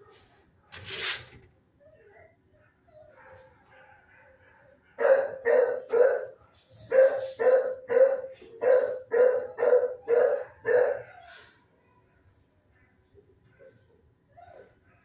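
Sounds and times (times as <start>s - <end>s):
dog barking: 3.1s - 11.3s.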